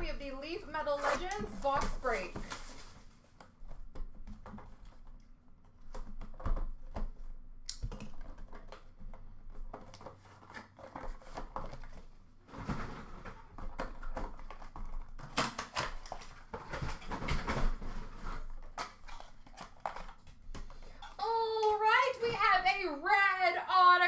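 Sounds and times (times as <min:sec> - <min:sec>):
rustling: 0:00.6 - 0:05.2.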